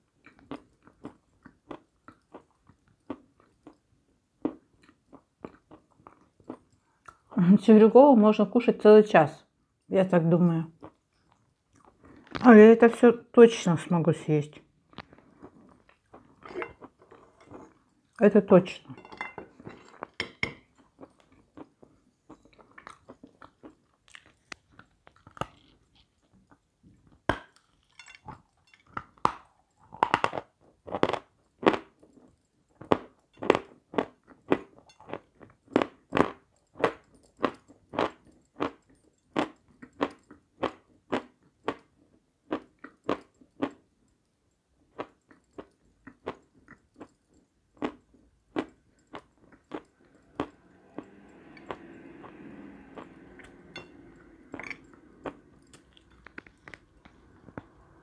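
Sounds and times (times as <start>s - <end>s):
crunching and chewing chalk: 0.2s - 7.4s, 19.7s - 50.7s, 54.5s - 58.0s.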